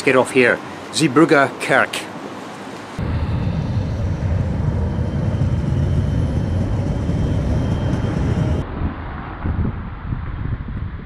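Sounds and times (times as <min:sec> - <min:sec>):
gusty outdoor noise: 0:02.1 - 0:11.0
faint steady whine: 0:02.8 - 0:08.6
tram rumbling past: 0:03.0 - 0:09.4.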